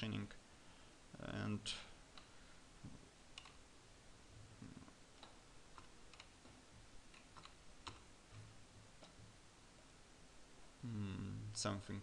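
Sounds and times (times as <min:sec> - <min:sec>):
low room hum: 0:00.0 - 0:12.0
keyboard and mouse clicks: 0:03.3 - 0:03.6, 0:04.6 - 0:09.2.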